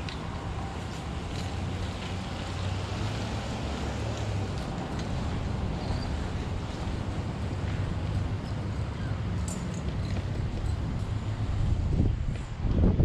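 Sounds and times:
wind buffeting microphone: 0:04.4 - 0:13.0.

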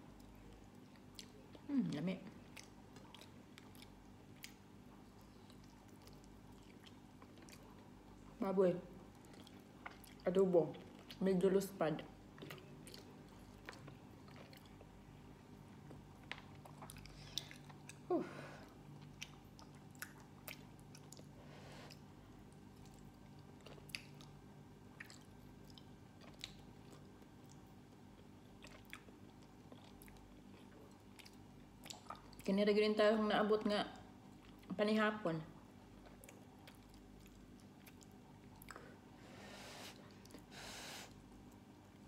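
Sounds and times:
person chewing food: 0:00.0 - 0:01.7, 0:02.4 - 0:08.3, 0:09.0 - 0:11.2, 0:12.2 - 0:32.5, 0:35.6 - 0:39.2
faint steady hum: 0:00.0 - 0:42.0.

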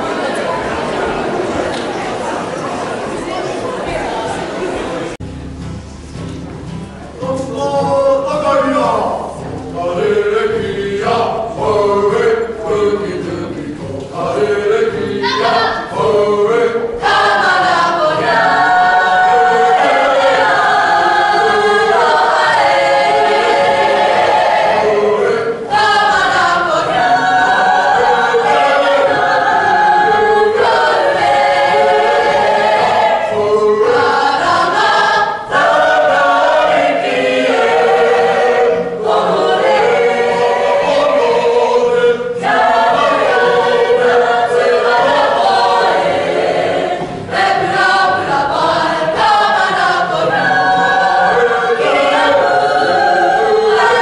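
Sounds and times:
choir singing in harmony: 0:07.8 - 0:54.0.

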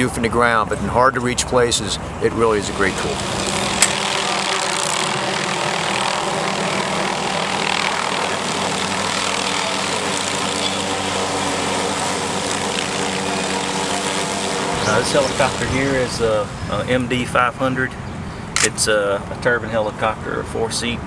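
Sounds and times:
helicopter running overhead: 0:00.0 - 0:20.4
circular saw blades spinning: 0:02.8 - 0:16.6.

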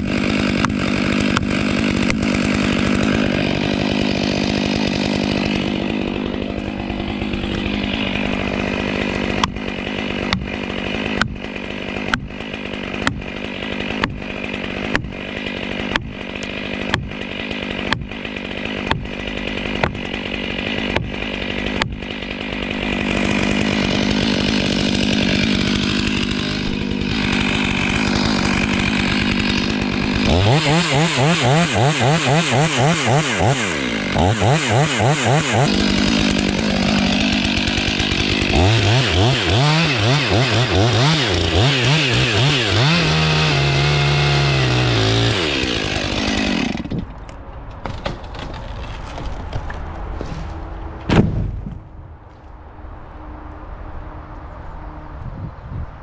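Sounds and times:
chainsaw running at high revs: 0:00.0 - 0:47.0.

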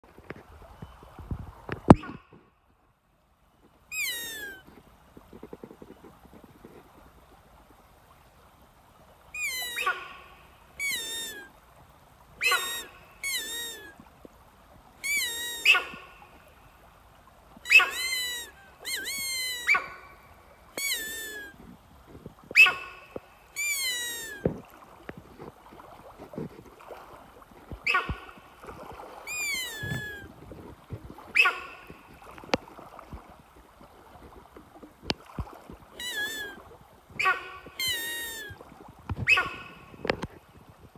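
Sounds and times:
high-pitched deer call bleats: 0:03.9 - 0:04.6, 0:09.4 - 0:11.5, 0:12.4 - 0:14.0, 0:15.0 - 0:16.2, 0:17.7 - 0:21.6, 0:22.6 - 0:24.5, 0:29.3 - 0:30.3, 0:36.0 - 0:36.6, 0:37.2 - 0:38.6, 0:39.3 - 0:39.9.

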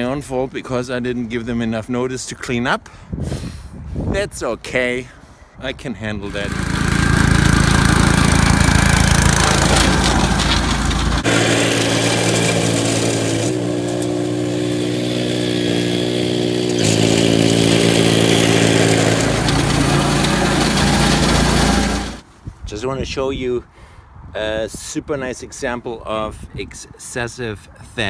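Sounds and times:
small gasoline engine running: 0:06.3 - 0:22.2.

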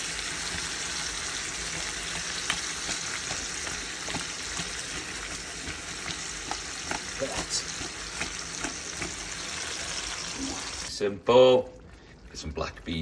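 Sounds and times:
sauce sizzling in a pot: 0:00.0 - 0:13.0
utensil clicking against pot: 0:01.8 - 0:04.8.

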